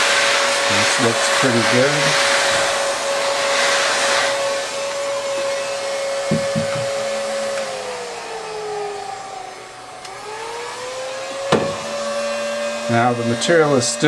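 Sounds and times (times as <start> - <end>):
rush of hot air: 0.0 - 9.4
heat gun fan whine: 0.0 - 14.0.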